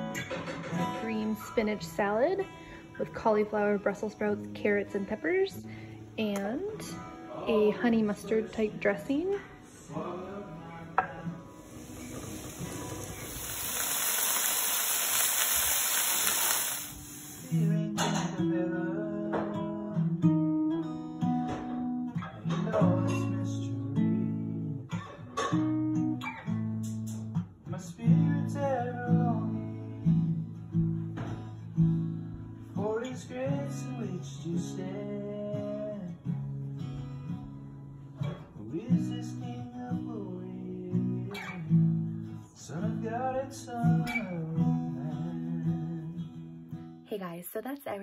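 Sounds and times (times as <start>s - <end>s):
acoustic guitar: 0.0s - 48.0s
food sizzling in a frying pan: 11.6s - 17.6s.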